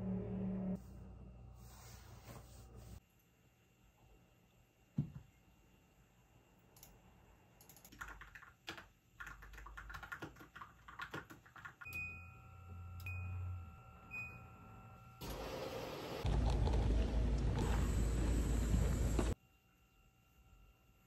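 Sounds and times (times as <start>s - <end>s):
low hum: 0.0s - 3.0s, 12.0s - 21.0s
keyboard typing: 7.6s - 12.0s
washing machine running: 15.2s - 19.4s.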